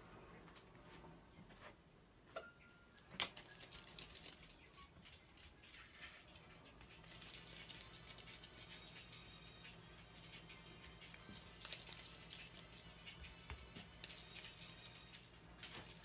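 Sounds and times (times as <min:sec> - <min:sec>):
gloved hands rustling dough: 0:06.7 - 0:16.0.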